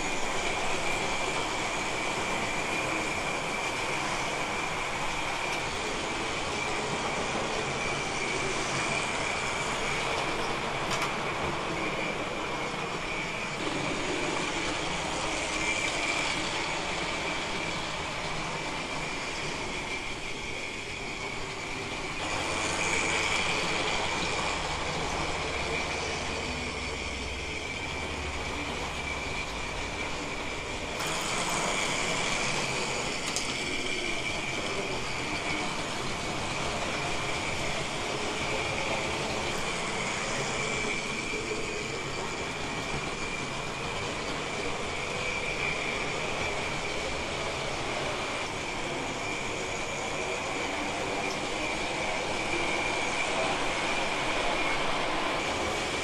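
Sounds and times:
model train wheels rumbling: 0.0s - 56.0s.

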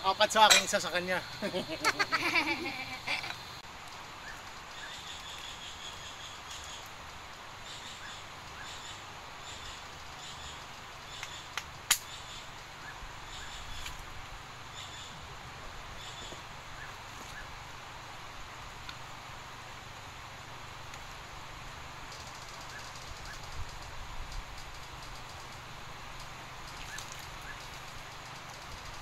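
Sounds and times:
steady hiss: 0.0s - 29.0s
sharp clicks: 11.2s - 12.2s.

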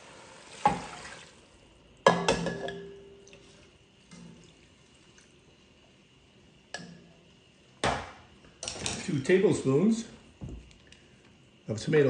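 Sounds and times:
kitchenware clinking: 2.0s - 3.2s.

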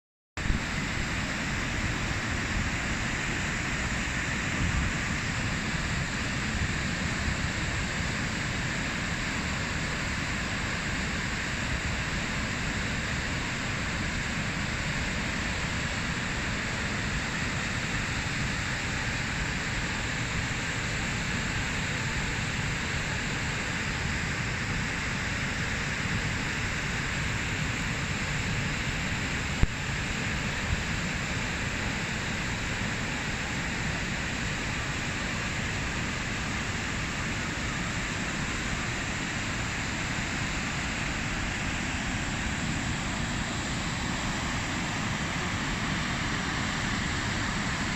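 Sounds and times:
waterfall rushing: 35.0s - 47.9s.

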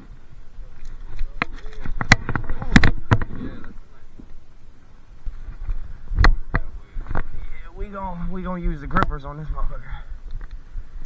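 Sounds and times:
fishing net rustling: 0.6s - 3.6s.

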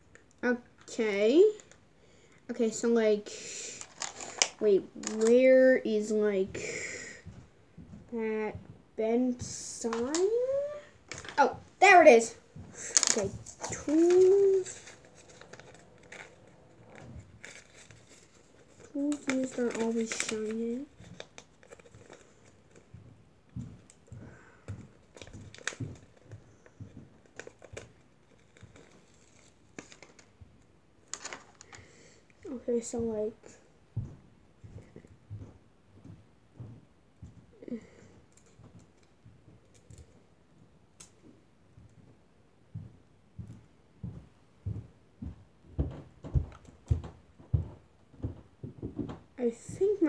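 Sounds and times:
footsteps walking: 7.2s - 20.1s, 20.8s - 30.6s, 32.9s - 37.5s, 38.1s - 39.6s, 40.5s - 49.3s.

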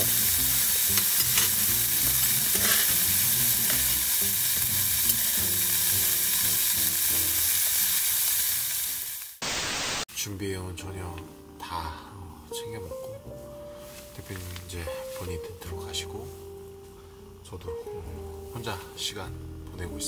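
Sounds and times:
meat sizzling: 0.0s - 10.1s.

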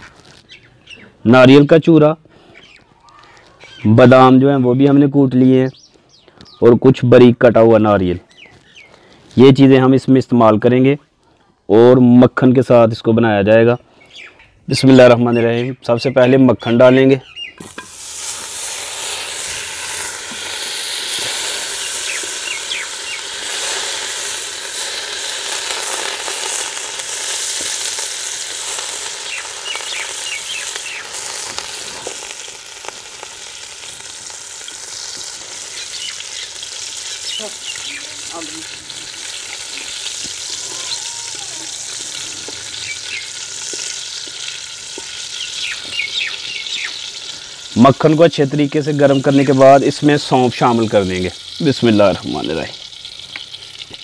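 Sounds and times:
butter sizzling in wok: 17.6s - 54.0s.

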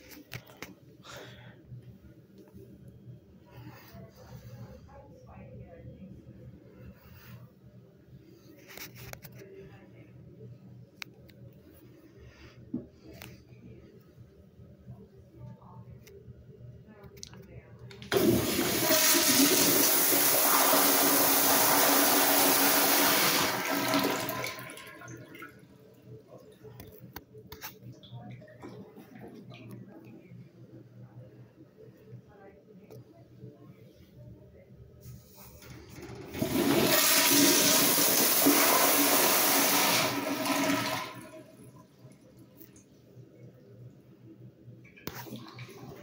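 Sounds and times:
toilet flushing: 18.0s - 25.6s, 35.6s - 42.3s.

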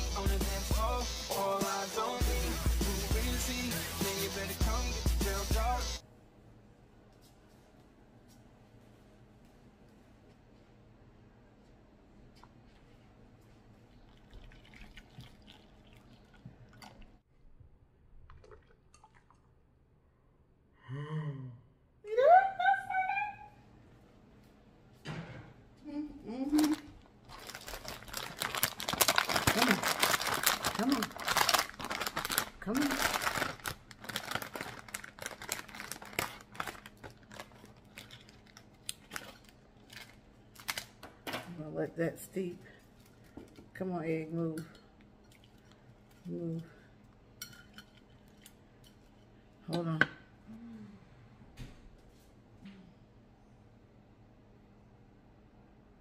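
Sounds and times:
water pouring into glass bowl: 14.0s - 17.1s
foil pouch crinkling: 26.6s - 41.0s.

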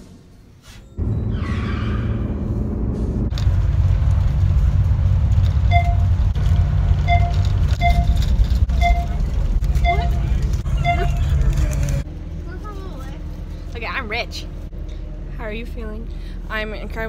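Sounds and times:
bus engine low rumble: 0.9s - 17.0s
short beeps: 5.7s - 6.0s, 7.1s - 9.2s, 9.8s - 11.2s.

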